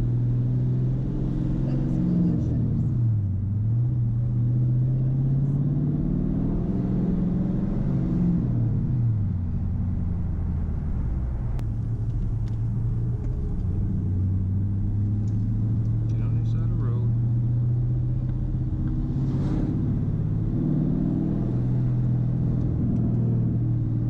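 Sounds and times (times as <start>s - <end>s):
car exhaust drone from inside cabin: 8.4s - 24.0s.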